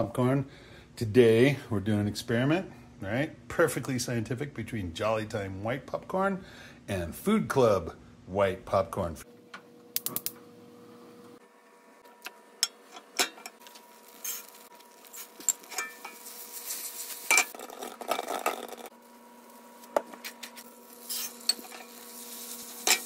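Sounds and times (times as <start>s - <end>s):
oil and butter sizzling: 13.5s - 23.0s.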